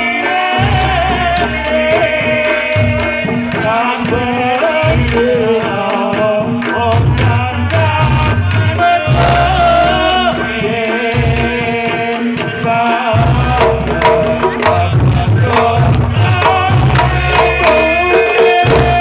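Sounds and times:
drum struck with stick: 0:00.5 - 0:19.0.

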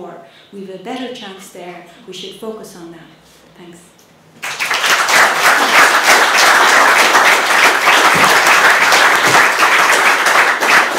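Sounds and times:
audience applauding: 0:04.4 - 0:10.9.

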